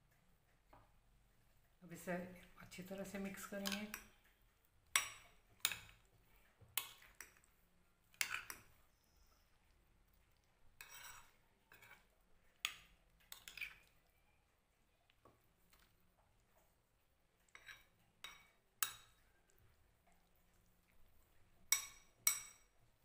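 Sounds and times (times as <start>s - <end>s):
spoon clinking in glass bowl: 21.7s - 22.7s.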